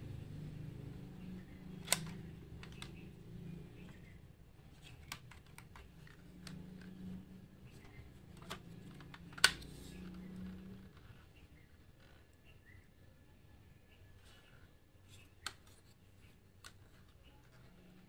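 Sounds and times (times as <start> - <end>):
toy car door clicking open: 1.8 - 3.0.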